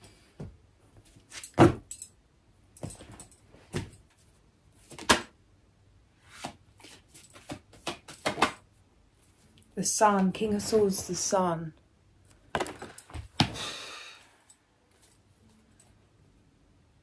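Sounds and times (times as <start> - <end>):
cards being shuffled: 6.3 - 8.6.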